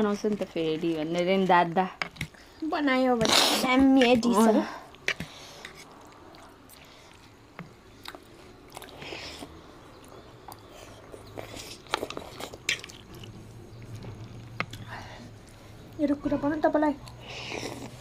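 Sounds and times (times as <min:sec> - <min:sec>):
chewing and mouth noises: 0:04.9 - 0:16.0, 0:17.0 - 0:18.0.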